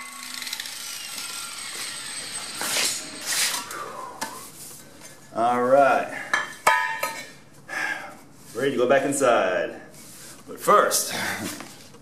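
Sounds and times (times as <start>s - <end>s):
steel tube scraping on concrete: 2.6s - 3.7s.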